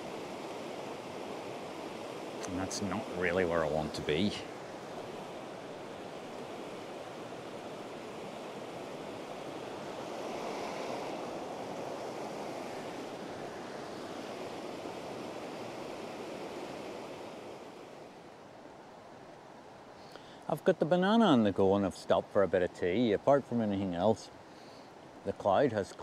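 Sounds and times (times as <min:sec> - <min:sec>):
river water rushing over rocks: 0:00.0 - 0:20.1.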